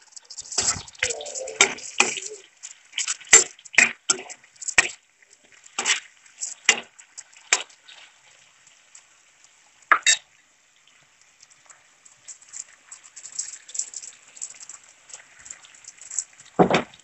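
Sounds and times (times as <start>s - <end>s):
oil sizzling: 0.0s - 17.0s.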